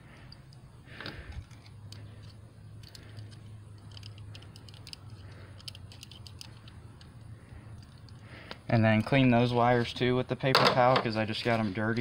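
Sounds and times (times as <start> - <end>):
low steady hum: 0.0 - 12.0
light clicks of handling wires: 0.2 - 9.2.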